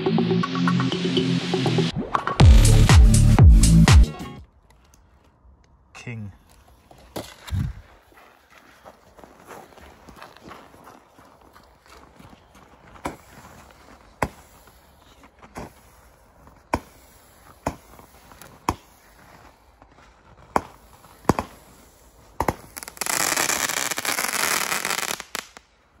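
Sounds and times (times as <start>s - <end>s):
firework crackling: 22.4s - 25.7s.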